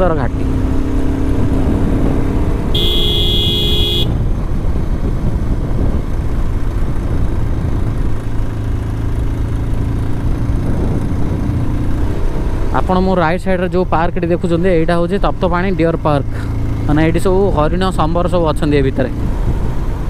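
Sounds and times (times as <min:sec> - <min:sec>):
motorcycle engine rumble: 0:00.0 - 0:20.0
vehicle horn: 0:02.7 - 0:04.2.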